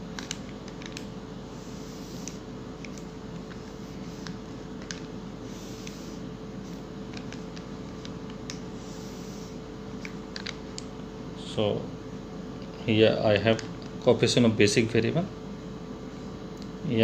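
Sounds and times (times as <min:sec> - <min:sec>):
steady tonal hum: 0:00.0 - 0:17.0.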